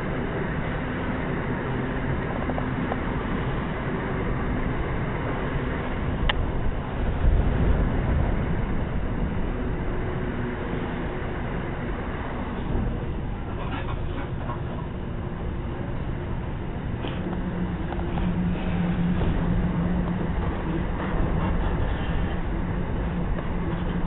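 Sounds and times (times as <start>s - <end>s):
train wheels rumbling on rails: 0.0s - 24.0s
wind rushing: 3.1s - 14.1s.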